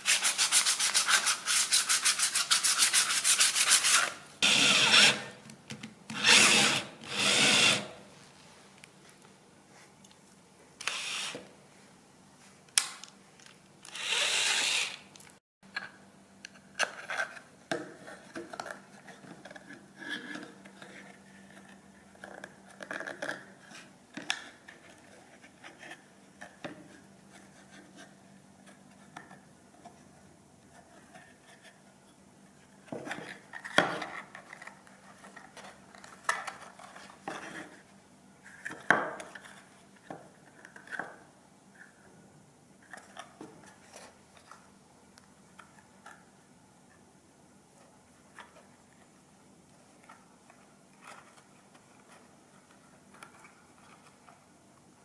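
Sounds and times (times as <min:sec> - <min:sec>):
cordless drill boring plastic: 0:04.4 - 0:05.3, 0:06.1 - 0:07.9, 0:10.8 - 0:11.4, 0:13.9 - 0:15.0.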